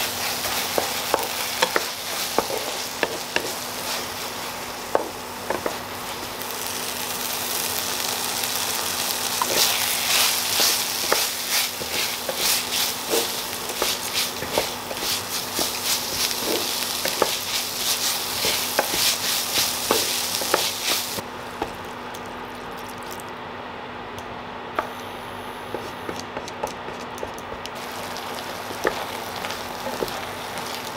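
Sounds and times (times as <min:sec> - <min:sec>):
food sizzling in a frying pan: 0:00.0 - 0:21.6, 0:27.8 - 0:30.9
wooden spatula scraping a pan: 0:09.4 - 0:21.2.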